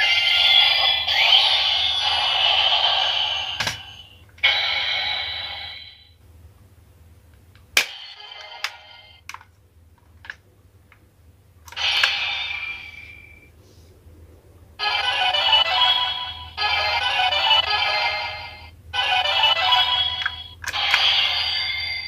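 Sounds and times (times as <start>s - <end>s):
toy electronic sound effects: 0.0s - 6.0s, 11.7s - 13.4s, 14.8s - 22.0s.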